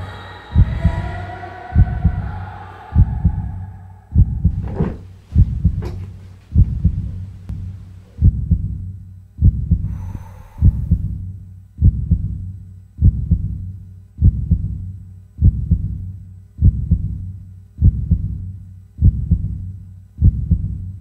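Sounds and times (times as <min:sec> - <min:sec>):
heartbeat thumps: 0:00.6 - 0:01.1, 0:01.8 - 0:02.3, 0:03.0 - 0:21.0
faint swishes: 0:04.5 - 0:07.5.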